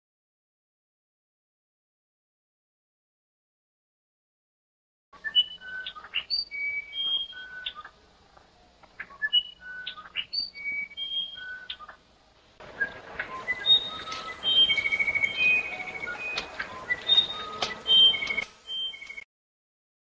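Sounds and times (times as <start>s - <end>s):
bird whistling song: 5.2s - 8.0s, 8.9s - 12.0s, 12.6s - 19.3s
faint high steady tone: 12.8s - 19.2s.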